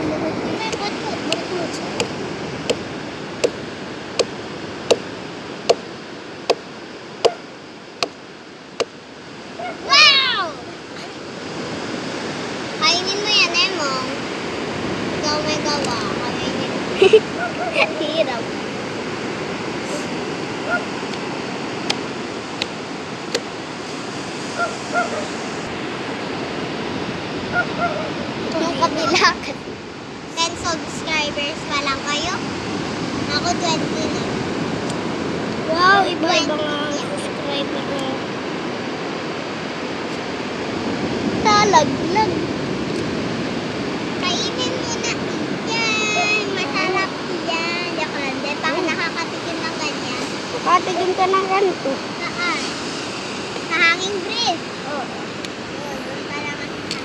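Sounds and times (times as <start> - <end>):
surf washing on beach: 0.0 - 57.0
cleaver chopping on wood: 2.0 - 2.8, 4.2 - 5.1.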